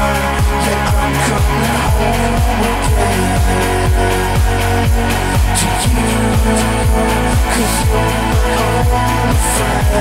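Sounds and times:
synth chords: 0:00.0 - 0:10.0.

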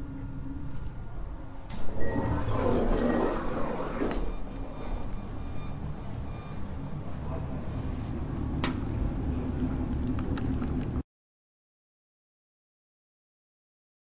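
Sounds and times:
train car low rumble: 0:00.0 - 0:11.0.

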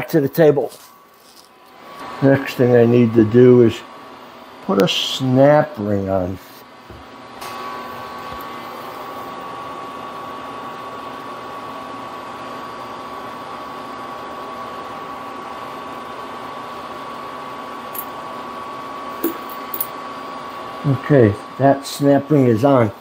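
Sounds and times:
fan-like hiss: 0:00.0 - 0:23.0
faint high hum: 0:14.8 - 0:23.0.

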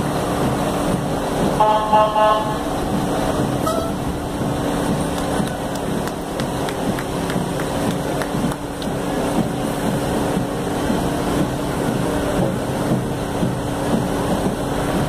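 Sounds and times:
fire engine engine running: 0:00.0 - 0:15.0
horn blast: 0:01.6 - 0:02.9, 0:03.5 - 0:04.3.

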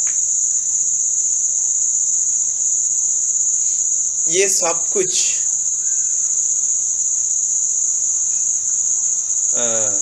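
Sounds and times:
faint electrical hum: 0:00.0 - 0:10.0.

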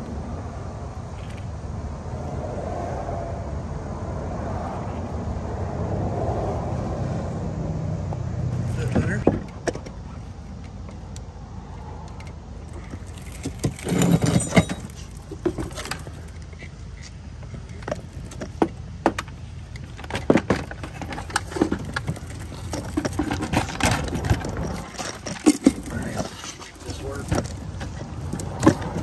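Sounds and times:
plastic housing knocking and scraping: 0:12.8 - 0:16.7, 0:17.4 - 0:29.0.

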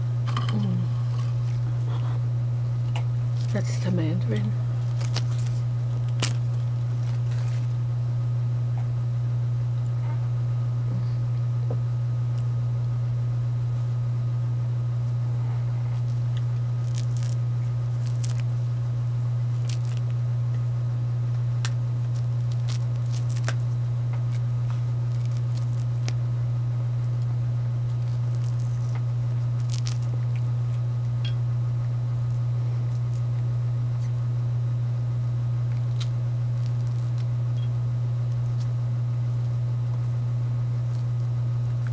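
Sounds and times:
low hum: 0:00.0 - 0:41.9
peel tearing and crackling: 0:04.6 - 0:08.0, 0:15.5 - 0:20.6, 0:21.3 - 0:31.2, 0:32.2 - 0:34.2, 0:35.6 - 0:41.9.

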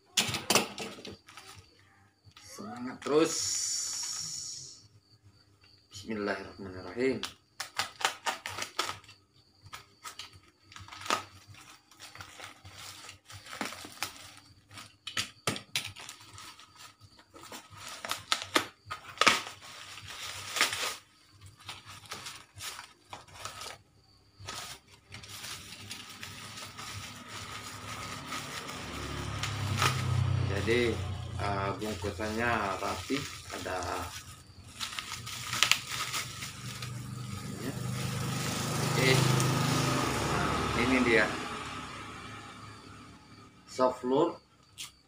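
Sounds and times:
packing tape ripping: 0:07.6 - 0:09.1, 0:09.7 - 0:16.6, 0:17.4 - 0:23.8, 0:24.4 - 0:31.0, 0:31.8 - 0:39.5
packaging crinkling: 0:07.6 - 0:39.5.

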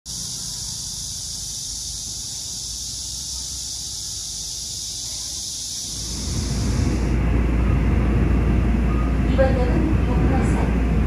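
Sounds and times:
cicadas buzzing: 0:00.1 - 0:08.9
city traffic rumble: 0:00.1 - 0:11.0.

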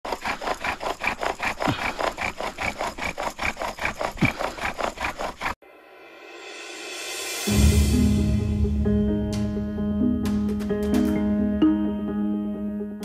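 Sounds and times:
bow drill rasping wood on wood: 0:00.0 - 0:05.6.

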